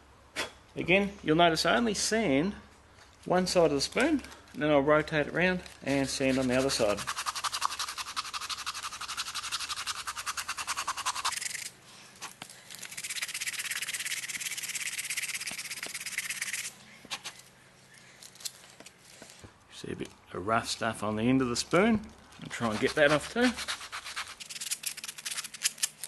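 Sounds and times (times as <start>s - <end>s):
sandpaper rubbing on wood: 5.9s - 11.7s, 22.5s - 25.7s.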